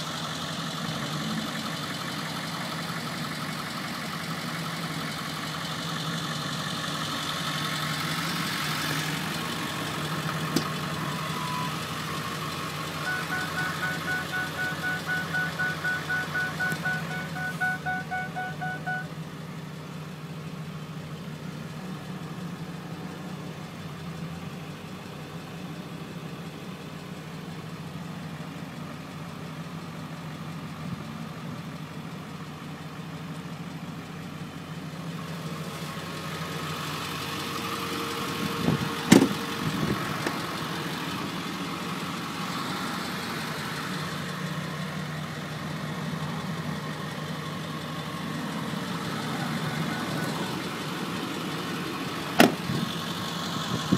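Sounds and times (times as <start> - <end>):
diesel engine idling: 0.0 - 53.9.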